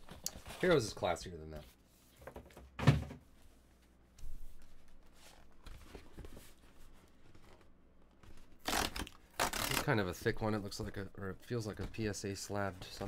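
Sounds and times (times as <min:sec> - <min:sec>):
thump: 0:02.3 - 0:03.2.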